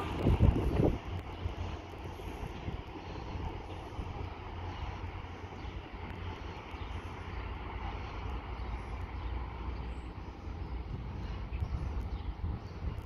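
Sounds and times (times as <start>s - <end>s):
wind on microphone: 0.0s - 5.0s, 10.6s - 13.0s
distant diesel train rumble: 0.0s - 13.0s.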